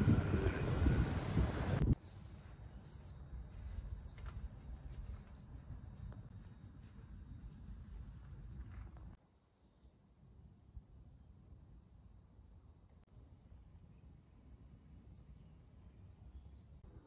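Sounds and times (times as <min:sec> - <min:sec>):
wind buffeting microphone: 0:00.0 - 0:02.0.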